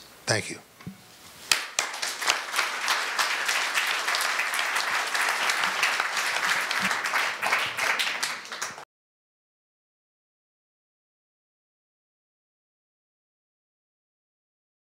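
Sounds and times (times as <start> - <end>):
audience applauding: 1.5 - 8.9.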